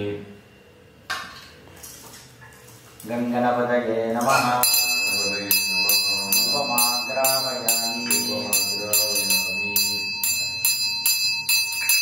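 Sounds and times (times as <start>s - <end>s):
low voice chanting softly: 4.2s - 10.7s
hand bell ringing: 4.6s - 12.0s.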